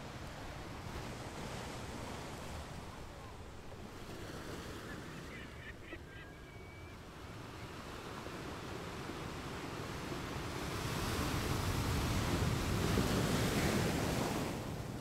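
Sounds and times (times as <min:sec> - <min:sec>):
ocean surf: 0:00.0 - 0:15.0.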